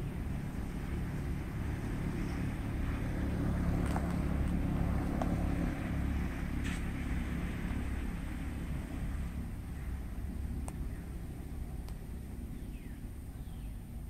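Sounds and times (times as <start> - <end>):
motorbike traffic rumble: 0.0 - 14.0
faint sharp clicks: 10.6 - 10.9, 11.8 - 12.1.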